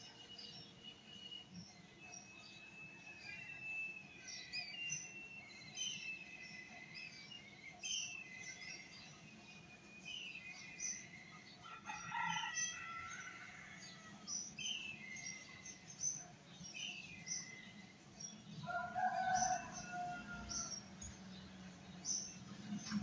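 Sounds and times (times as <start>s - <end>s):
small birds chirping: 0.0s - 23.0s
rooster crowing: 11.6s - 14.2s, 18.6s - 20.9s.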